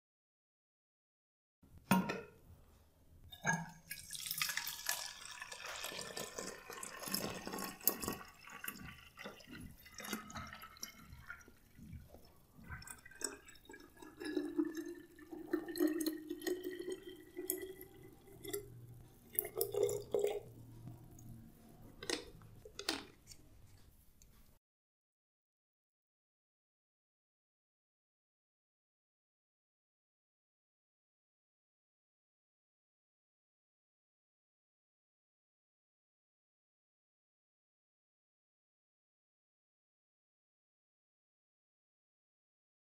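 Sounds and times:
water drips: 3.4s - 21.4s
water running into a bottle: 3.8s - 18.7s.

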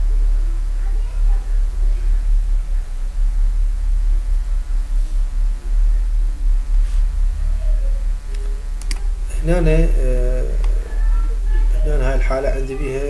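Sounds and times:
loud low throbbing hum: 0.0s - 13.0s
faint click: 8.3s - 9.1s.

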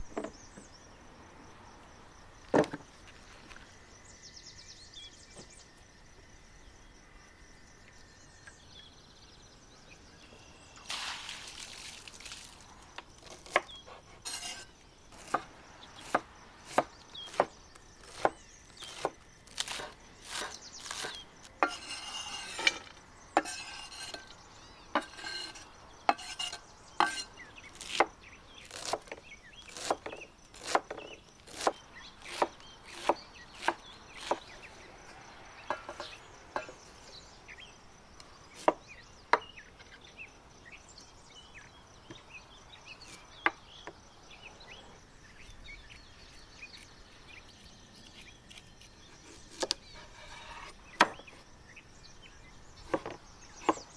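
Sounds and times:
crunching of stalks: 10.8s - 24.4s.

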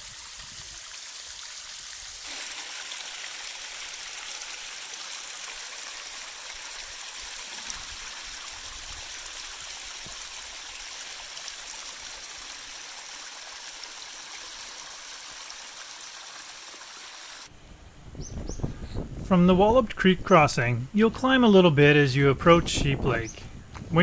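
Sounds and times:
creek water rushing and splashing: 0.0s - 17.5s.

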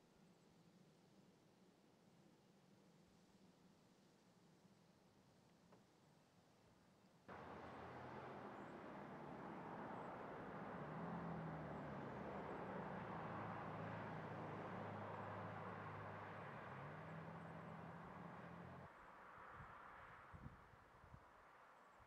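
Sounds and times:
vehicle passing: 7.3s - 18.9s.

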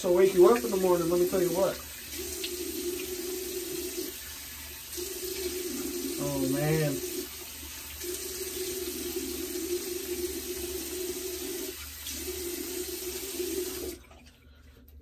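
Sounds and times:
faucet running water: 0.0s - 15.0s.

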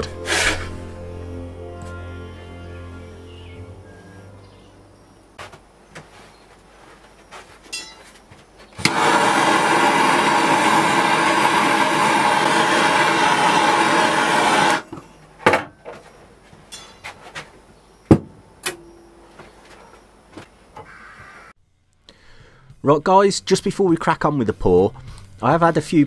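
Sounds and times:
blowtorch igniter click: 8.8s - 9.1s
blowtorch flame hissing: 8.8s - 14.9s.

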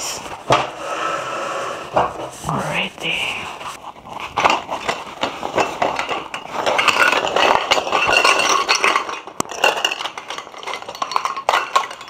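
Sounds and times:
metal poles scraping and clinking: 3.6s - 12.0s.

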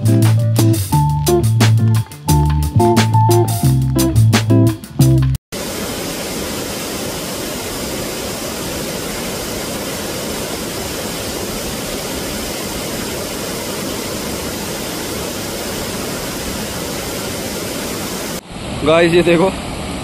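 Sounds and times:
small waterfall rushing: 5.5s - 20.0s.

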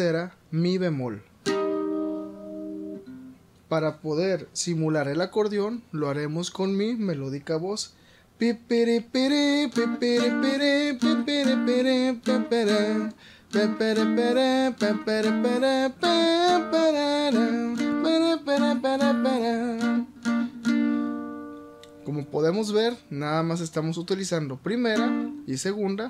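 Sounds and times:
twelve-string guitar strumming: 1.4s - 3.4s, 9.1s - 23.8s, 24.7s - 25.6s
man vocalising a melody: 7.2s - 20.5s, 22.0s - 26.0s.

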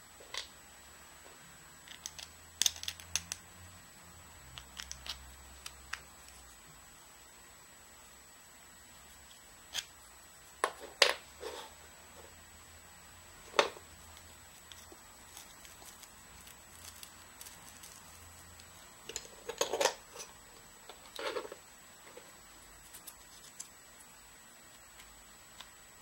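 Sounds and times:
plastic parts clicking and knocking: 1.9s - 3.4s.

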